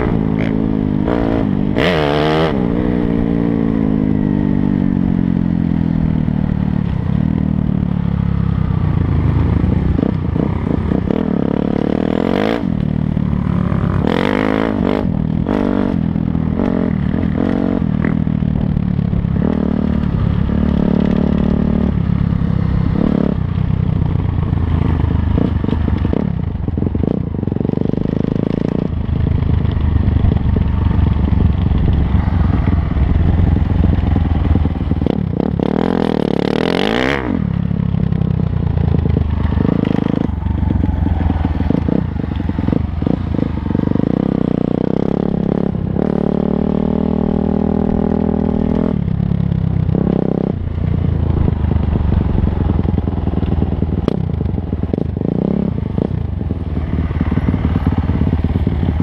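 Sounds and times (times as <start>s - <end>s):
dirt bike engine revving: 0.0s - 4.2s, 13.5s - 18.6s, 30.8s - 38.2s.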